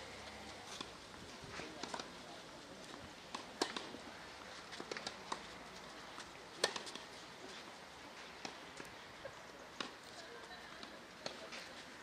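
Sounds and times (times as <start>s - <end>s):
tennis ball struck by rackets: 3.3s - 4.0s, 6.6s - 7.0s.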